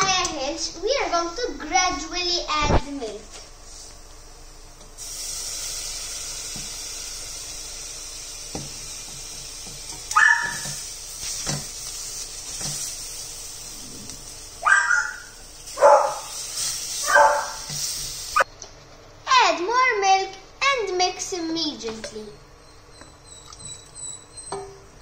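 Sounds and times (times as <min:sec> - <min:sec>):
saucepan sizzling: 0:03.6 - 0:18.5
small dog yapping: 0:10.1 - 0:10.7, 0:14.6 - 0:16.3, 0:17.0 - 0:17.6.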